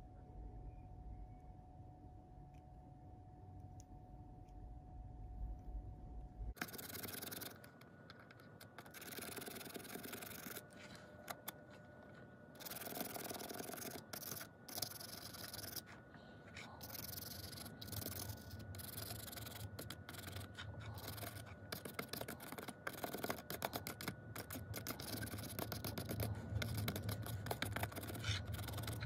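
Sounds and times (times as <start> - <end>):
pen bristles scrubbing plastic: 6.6 - 29.0.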